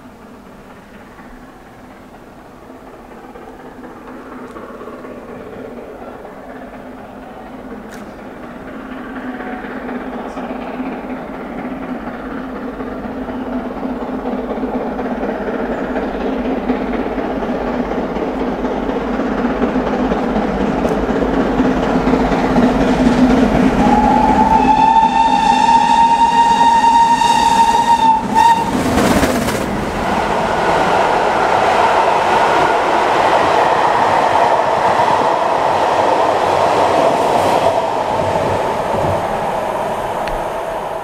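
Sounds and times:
coaches clattering over rails: 0:00.0 - 0:41.0
steam locomotive passing: 0:00.0 - 0:41.0
steam whistle blast: 0:23.8 - 0:28.8.

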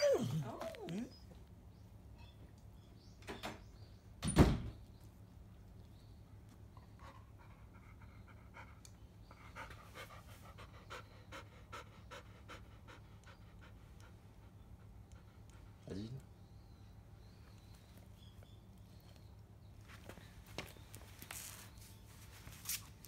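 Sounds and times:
dog panting: 0:06.8 - 0:16.9.

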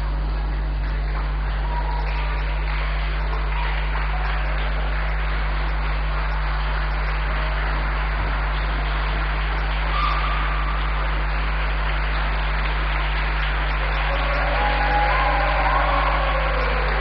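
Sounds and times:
electrical mains hum: 0:00.0 - 0:17.0
constant hiss: 0:03.8 - 0:09.9, 0:10.8 - 0:14.2.

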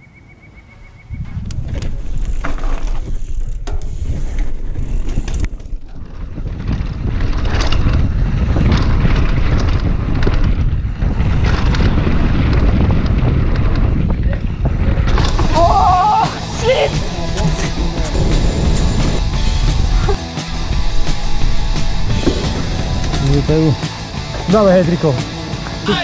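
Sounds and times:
wind on camera microphone: 0:00.8 - 0:23.8
bike tyres on dirt: 0:01.0 - 0:26.0
bike rattling over bumps: 0:01.2 - 0:26.0.

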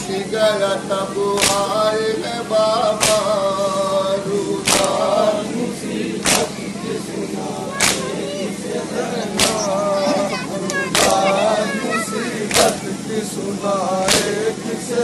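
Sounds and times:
man singing a lament: 0:00.0 - 0:05.9
people slapping their chests: 0:01.3 - 0:01.9, 0:02.9 - 0:03.4, 0:04.6 - 0:05.2, 0:06.2 - 0:06.7, 0:07.7 - 0:08.2, 0:09.3 - 0:09.8, 0:10.6 - 0:11.4, 0:12.4 - 0:13.0, 0:14.0 - 0:14.5.

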